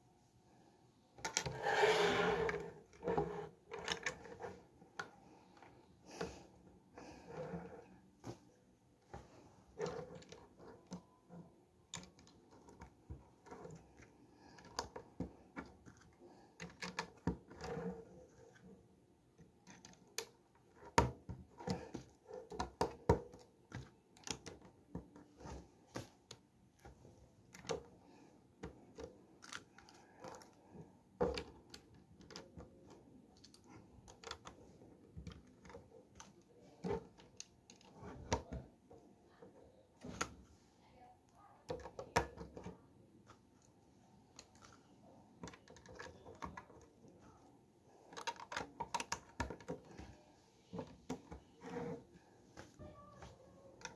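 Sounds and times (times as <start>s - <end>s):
plastic bricks clicking: 48.1s - 49.9s.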